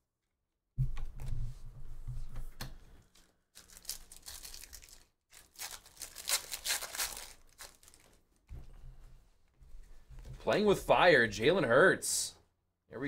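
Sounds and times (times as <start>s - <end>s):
foil pack crinkling: 3.2s - 8.2s.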